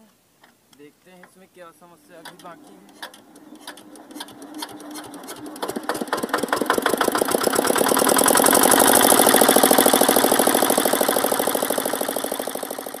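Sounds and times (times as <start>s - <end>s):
diesel engine knocking beat: 2.0s - 13.0s.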